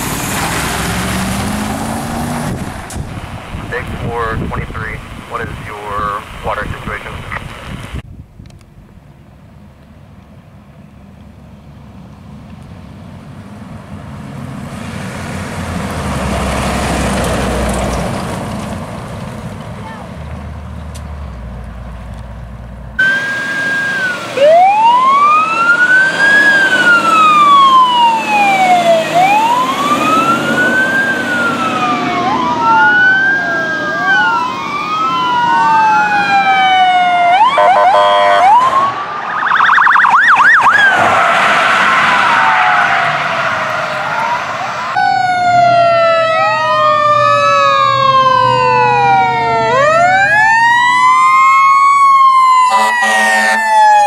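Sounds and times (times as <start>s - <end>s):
emergency sirens wailing: 0.0s - 7.4s, 23.0s - 54.0s.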